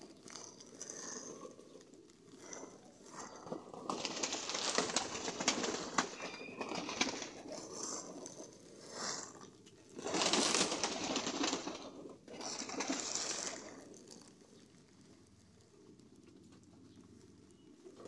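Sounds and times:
pigeons cooing: 0.0s - 18.0s
pigeons scuffling: 0.0s - 18.0s
wings flapping: 2.4s - 8.4s, 9.9s - 14.3s.

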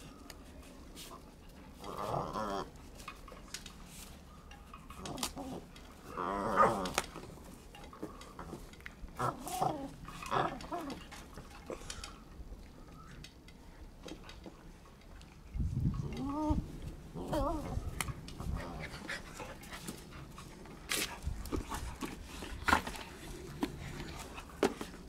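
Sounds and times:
puppy growling: 1.8s - 2.8s, 5.0s - 7.2s, 9.2s - 11.8s, 16.0s - 20.6s.

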